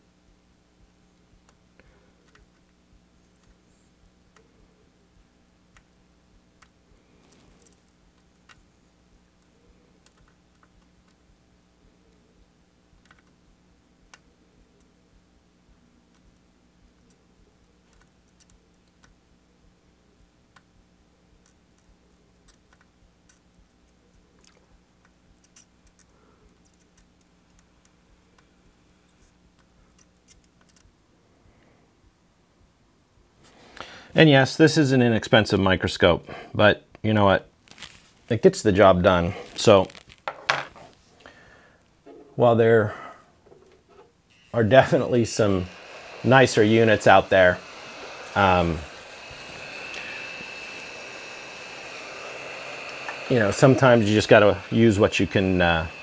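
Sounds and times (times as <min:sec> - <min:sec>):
faint steady hum: 0:00.0 - 0:56.0
small clicks and ticks: 0:09.4 - 0:11.3, 0:12.9 - 0:13.4, 0:15.7 - 0:19.2, 0:20.2 - 0:31.0.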